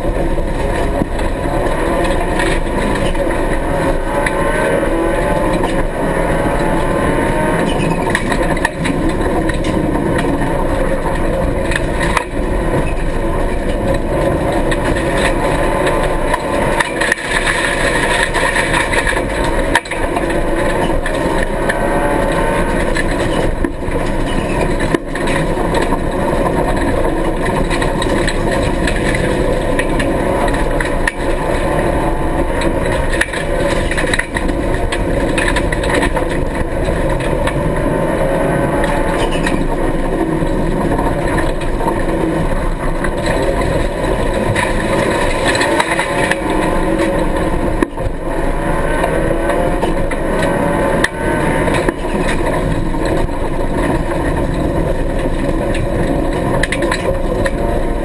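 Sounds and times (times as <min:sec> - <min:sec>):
rally car engine revving: 0:00.0 - 0:58.0.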